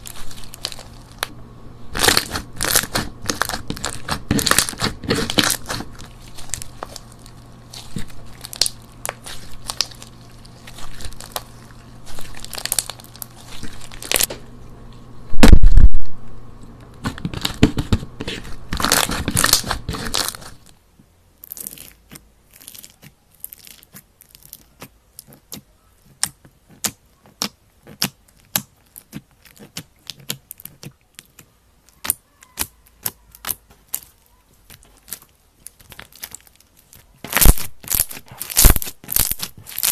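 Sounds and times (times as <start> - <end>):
slime squeezed and crackling: 0.0 - 1.3, 1.9 - 14.3, 18.7 - 20.7, 21.4 - 39.9
slime beads popping and clicking: 7.9 - 10.2, 35.1 - 39.9.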